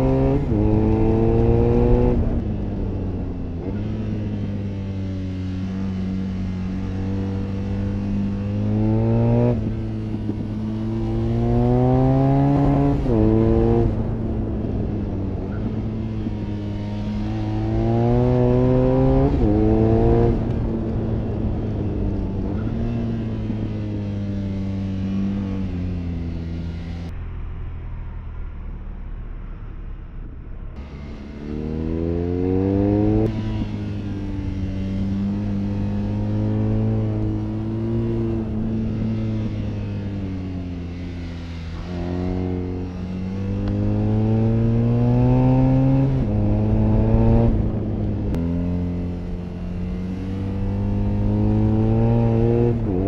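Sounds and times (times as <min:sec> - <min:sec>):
motorcycle engine accelerating: 0:00.0 - 0:29.6, 0:30.8 - 0:53.0.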